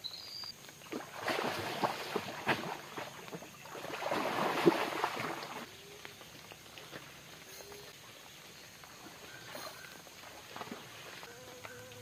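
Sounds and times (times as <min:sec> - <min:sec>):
fish thrashing and splashing in water: 0:00.9 - 0:05.7.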